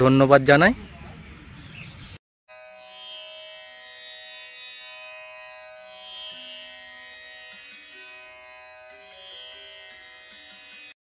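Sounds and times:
instrumental background music: 0:02.5 - 0:11.0
steady drone: 0:02.5 - 0:11.0.

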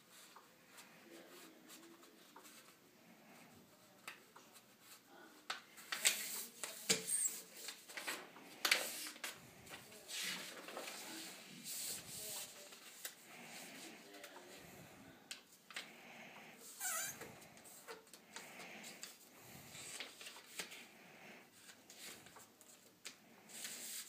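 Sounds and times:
paper being folded: 0:03.9 - 0:14.1, 0:19.8 - 0:20.9, 0:21.6 - 0:24.0.

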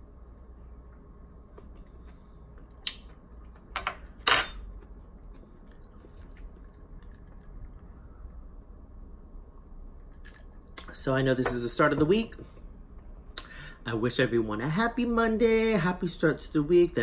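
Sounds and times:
person chewing: 0:01.5 - 0:08.3
metal spoon clinking on dishes: 0:03.8 - 0:04.6.

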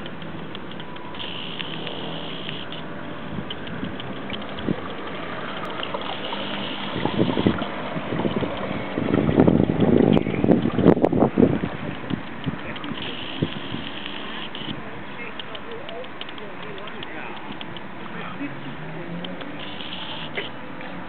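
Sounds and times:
electric motor whirring and rattle: 0:00.0 - 0:02.9, 0:03.5 - 0:11.0, 0:12.0 - 0:14.8, 0:19.5 - 0:20.5.

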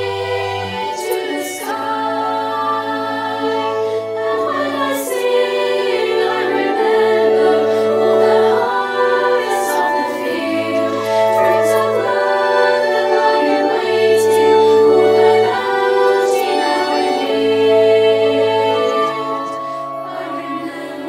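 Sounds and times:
choir singing held chords: 0:00.0 - 0:21.0.

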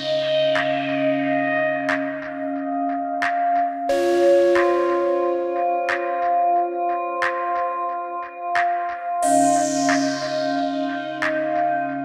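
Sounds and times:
bell-like chords: 0:03.9 - 0:12.0.

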